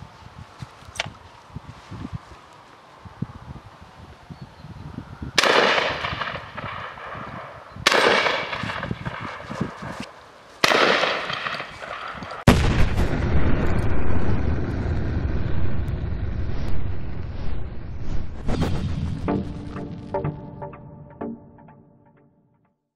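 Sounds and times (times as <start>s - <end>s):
shotgun shots: 5.4s - 13.1s
loud music: 19.2s - 22.2s.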